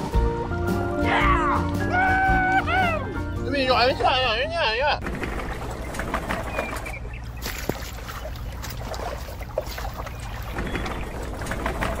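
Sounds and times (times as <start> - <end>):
wet concrete sloshing: 5.0 - 12.0.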